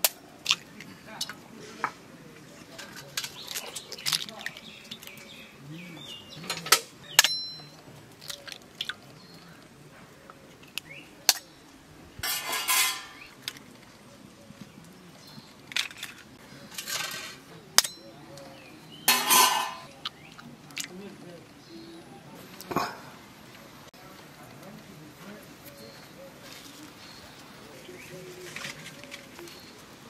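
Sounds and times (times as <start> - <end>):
eggshell crackling: 8.1 - 9.8.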